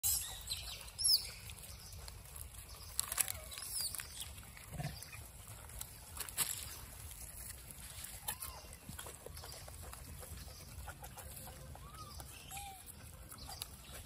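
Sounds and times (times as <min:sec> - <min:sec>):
clicks and rustles: 0:01.5 - 0:04.5.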